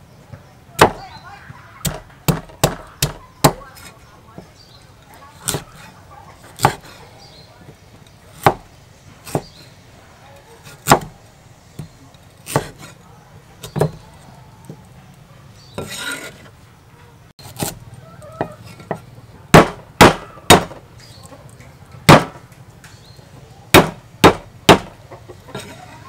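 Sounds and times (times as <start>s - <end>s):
knife striking wooden chopping block: 6.5s - 6.9s, 10.8s - 11.2s, 12.4s - 12.9s, 18.8s - 20.8s, 22.1s - 22.4s, 23.8s - 25.0s.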